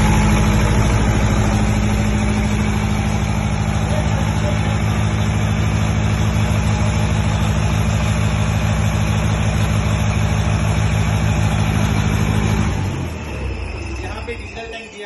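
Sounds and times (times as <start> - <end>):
diesel generator running: 0.0 - 15.0.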